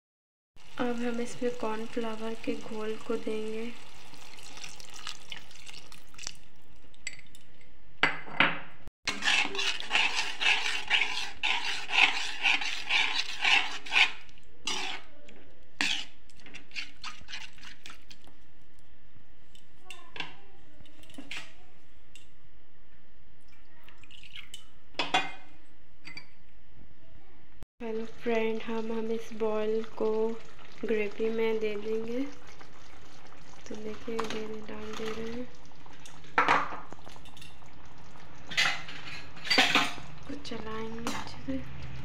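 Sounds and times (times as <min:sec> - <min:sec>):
metal spoon scraping a pan: 0:09.1 - 0:15.2, 0:15.8 - 0:18.3, 0:38.5 - 0:40.1.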